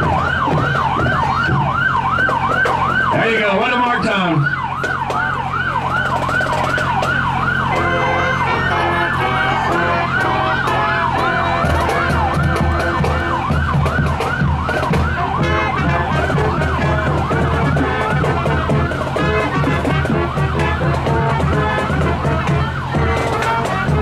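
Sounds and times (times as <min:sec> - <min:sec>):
emergency siren yelping: 0:00.0 - 0:24.0
marching band drums: 0:00.0 - 0:24.0
marching band wind instruments: 0:00.0 - 0:24.0.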